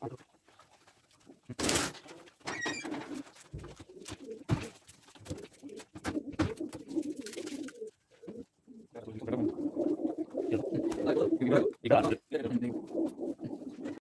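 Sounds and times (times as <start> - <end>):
knocks and clicks from coops: 1.6 - 6.8
pigeons cooing: 2.1 - 14.0.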